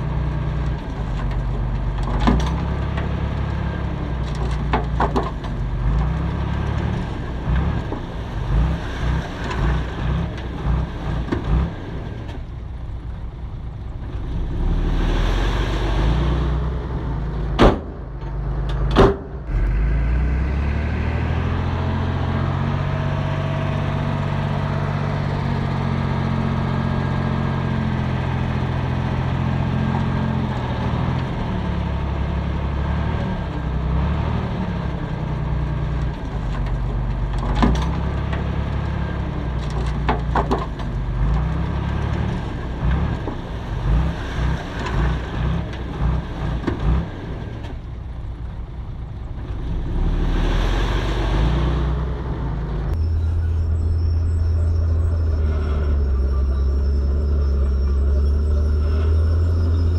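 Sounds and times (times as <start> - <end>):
heavy diesel engines droning: 0.0 - 59.9.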